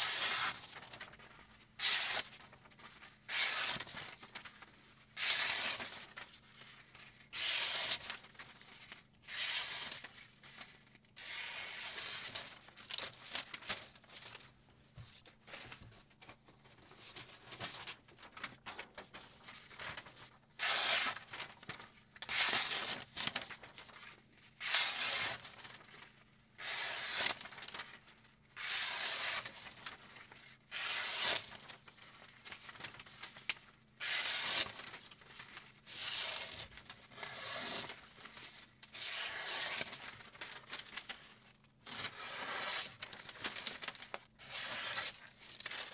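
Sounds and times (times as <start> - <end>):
knife slicing paper: 0.0 - 1.2, 1.8 - 2.5, 3.3 - 4.4, 5.2 - 6.2, 7.3 - 8.2, 9.3 - 10.1, 11.2 - 13.8, 20.6 - 23.9, 24.6 - 25.7, 26.6 - 27.8, 28.6 - 30.0, 30.7 - 31.8, 34.0 - 35.0, 35.9 - 41.2, 41.9 - 45.9.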